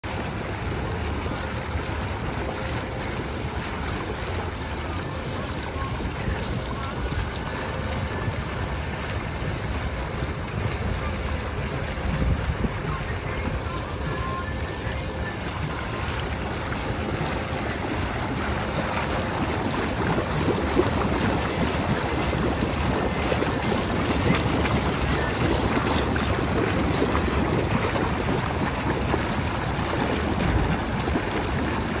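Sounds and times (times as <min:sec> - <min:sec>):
hot tub jets churning water: 0:00.0 - 0:32.0.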